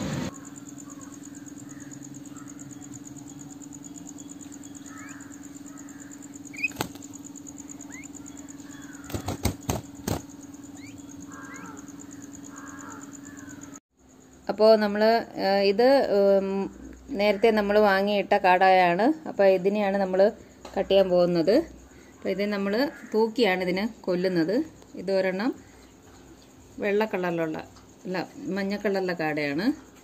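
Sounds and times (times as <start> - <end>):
steady low hum: 0.0 - 14.4
quail peeping: 6.5 - 7.0.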